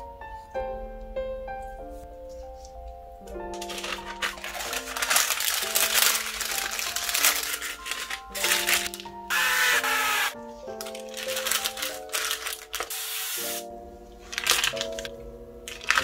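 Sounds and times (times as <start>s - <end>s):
light piano music: 0.0s - 16.0s
cooking oil spray hissing: 12.7s - 13.7s.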